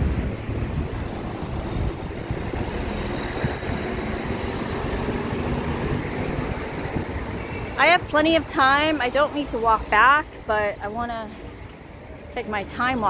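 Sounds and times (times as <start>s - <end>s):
low rumble of street noise: 0.0s - 13.0s.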